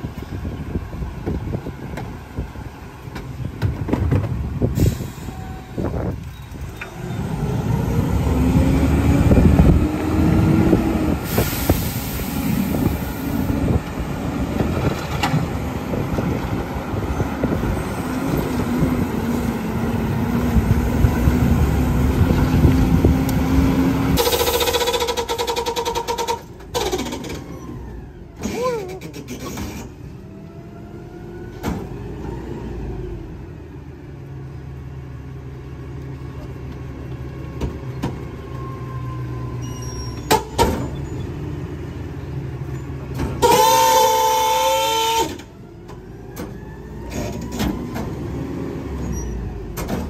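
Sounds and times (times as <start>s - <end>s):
truck diesel engine pulling away: 4.4s - 43.4s, 45.3s - 50.0s
air brakes hissing: 4.6s - 5.9s, 11.1s - 13.7s, 24.2s - 26.4s.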